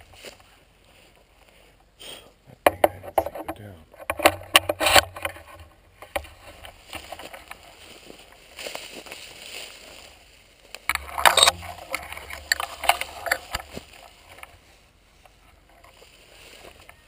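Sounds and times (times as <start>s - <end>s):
dry grass rustling: 0.0s - 2.0s, 2.6s - 17.0s
camera handling scrapes and knocks: 2.7s - 7.7s, 10.9s - 14.6s.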